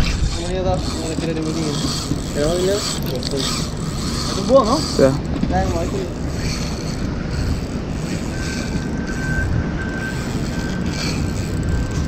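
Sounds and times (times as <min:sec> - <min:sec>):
wind rumble on microphone: 0:00.0 - 0:12.0
faint high whine: 0:06.0 - 0:12.0.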